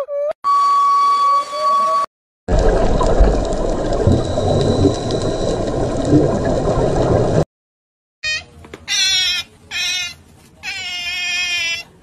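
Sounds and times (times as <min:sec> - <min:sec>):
underwater rumbling hiss: 0:02.5 - 0:07.4.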